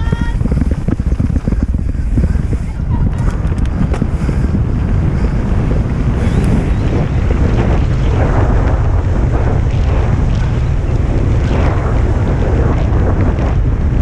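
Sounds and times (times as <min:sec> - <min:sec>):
bike knocks and rattles: 0:00.0 - 0:04.6
tyres on dirt trail: 0:00.0 - 0:14.0
wind buffeting microphone: 0:00.0 - 0:14.0.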